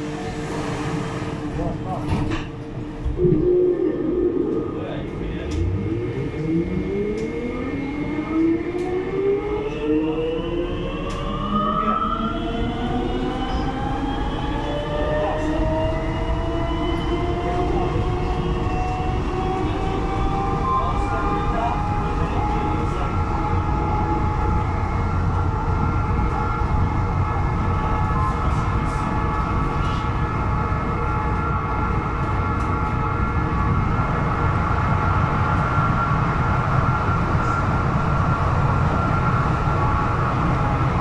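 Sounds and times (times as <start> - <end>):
train running rumble: 0.0 - 7.3.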